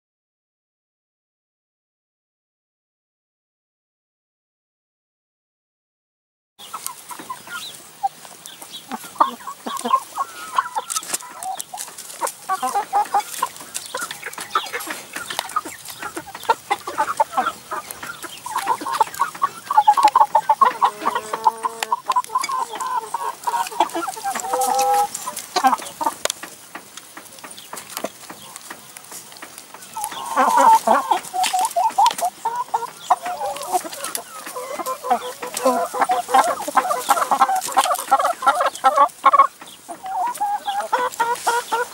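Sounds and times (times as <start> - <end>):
hens clucking: 6.6 - 41.9.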